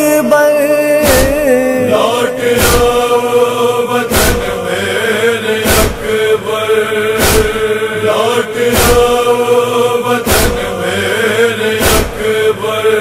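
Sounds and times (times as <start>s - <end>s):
men chanting: 0.0s - 13.0s
chest-beating unison beats: 1.0s - 6.4s, 7.0s - 7.8s, 8.6s - 11.0s, 11.7s - 12.5s
steady drone: 1.2s - 13.0s.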